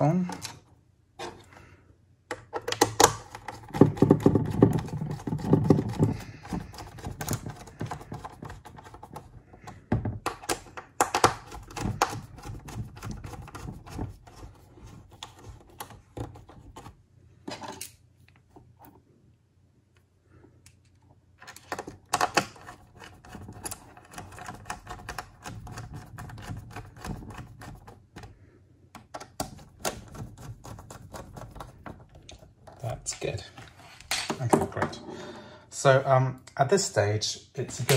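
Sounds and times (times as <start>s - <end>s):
plastic brackets and screws clicking: 2.3s - 14.2s, 20.8s - 28.3s.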